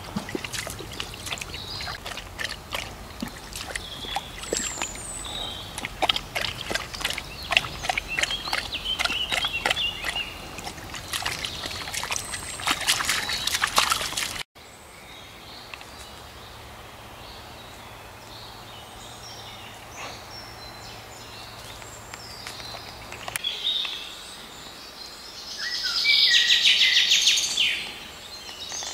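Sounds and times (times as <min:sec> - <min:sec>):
dog splashing and lapping water: 0:00.0 - 0:14.5
birds singing: 0:00.0 - 0:28.9.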